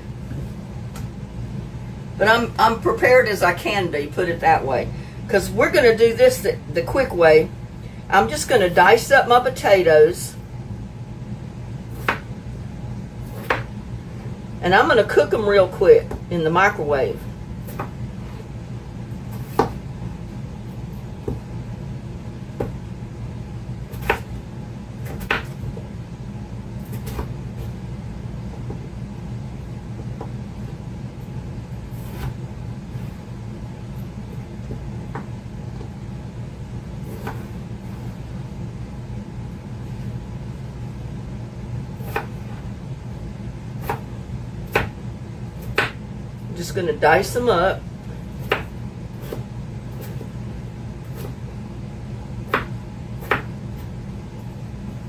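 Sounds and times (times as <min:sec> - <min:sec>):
steady low hum: 0:00.0 - 0:55.0
knife chopping on cutting board: 0:12.0 - 0:12.3, 0:13.3 - 0:13.7, 0:19.3 - 0:19.8, 0:23.9 - 0:24.3, 0:25.0 - 0:25.6, 0:44.7 - 0:45.0, 0:45.6 - 0:46.0, 0:48.4 - 0:49.4, 0:52.5 - 0:53.5.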